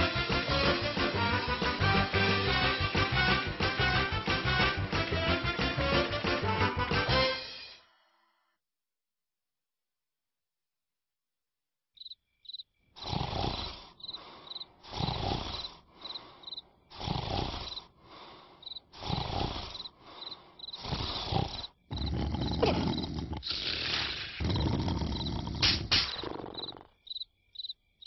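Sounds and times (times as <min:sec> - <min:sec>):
cricket chirping: 0:12.0 - 0:23.4, 0:24.4 - 0:28.0
loud rasping snore: 0:13.0 - 0:16.2, 0:16.9 - 0:18.0, 0:18.9 - 0:27.0.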